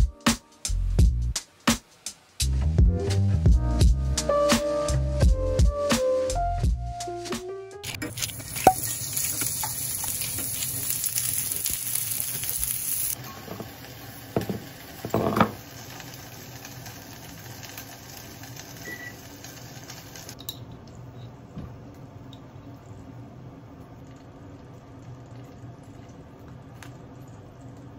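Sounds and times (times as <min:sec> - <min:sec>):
butter sizzling in pan: 0:07.9 - 0:20.4.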